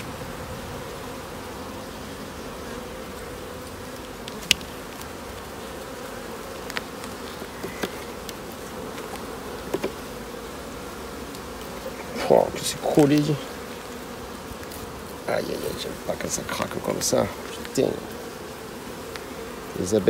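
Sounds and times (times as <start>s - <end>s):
bees buzzing: 0.0s - 20.0s
hive tool clicking on wooden frames: 3.6s - 10.3s, 11.2s - 15.2s, 16.4s - 18.2s, 18.8s - 19.7s.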